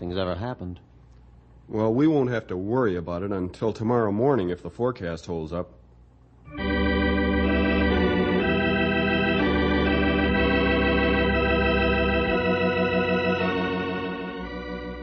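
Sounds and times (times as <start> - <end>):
organ chords with vibrato: 6.5 - 15.0.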